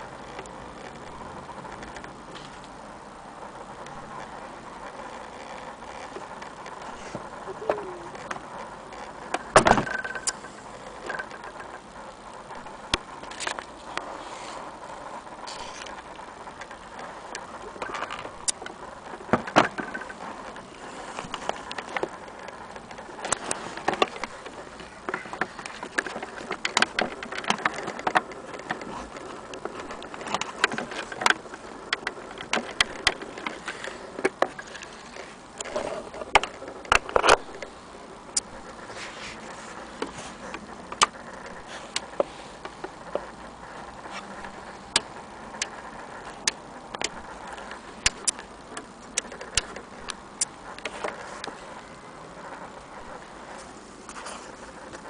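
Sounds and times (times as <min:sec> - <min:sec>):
plastic parts clicking and tapping: 0:17.7 - 0:38.5, 0:44.0 - 0:51.6.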